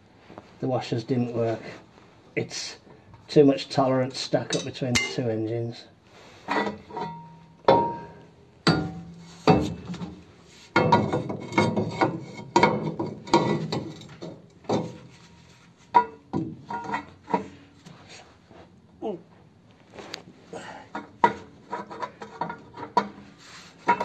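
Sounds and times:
metal clanks and clinks: 0:04.5 - 0:05.3, 0:06.5 - 0:10.1, 0:15.9 - 0:17.5.

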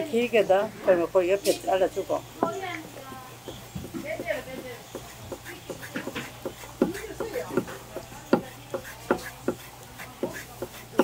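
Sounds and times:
knife knocking on wooden cutting board: 0:03.5 - 0:09.6.

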